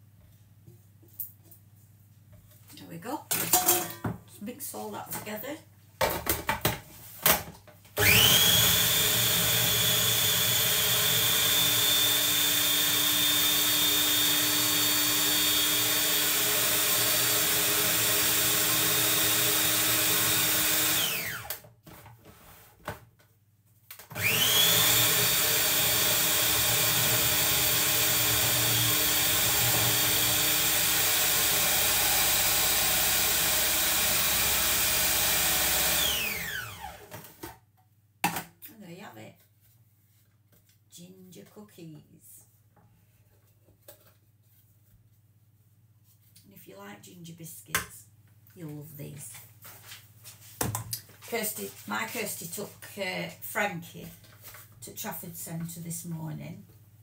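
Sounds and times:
food processor motor whirring: 8.0 - 21.6, 24.1 - 37.2.

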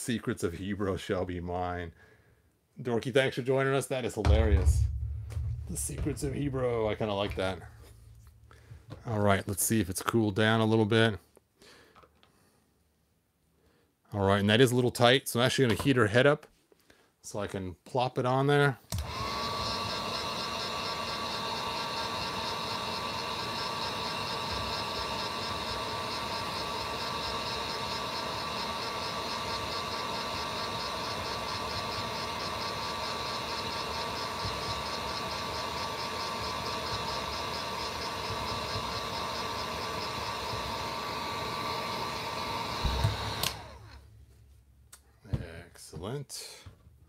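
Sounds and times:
heat gun blowing hot air: 19.0 - 44.0.

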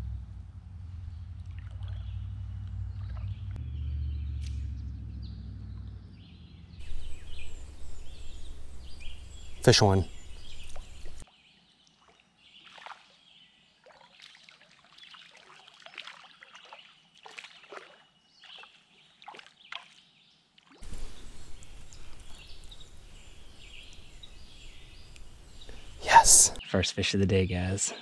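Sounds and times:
faint bird calls: 6.8 - 11.2, 20.8 - 26.6
steady outdoor hiss: 6.8 - 11.2, 20.8 - 26.6
fish splashing in water: 13.8 - 20.0, 20.6 - 26.0.

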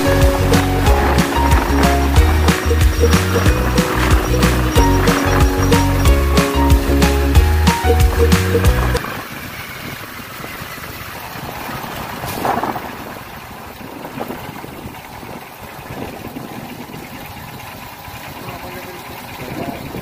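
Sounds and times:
music with heavy bass: 0.0 - 9.0
engine running: 0.0 - 20.0.

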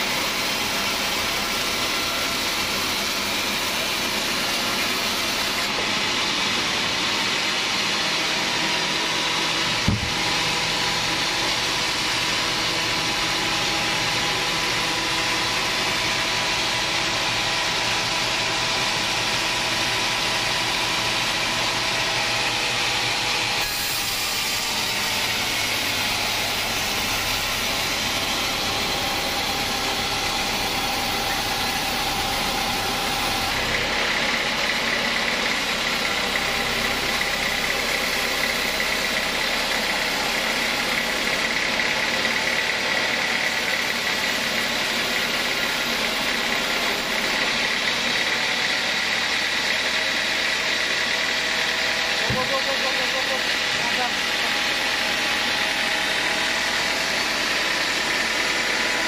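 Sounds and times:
band saw cutting log: 0.0 - 59.0
sharp knock: 9.8 - 10.2.

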